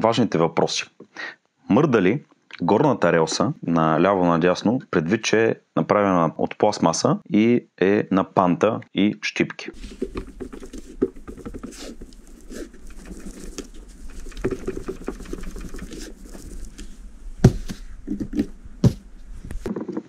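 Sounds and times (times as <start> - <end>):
sharp knocks: 17.4 - 20.0.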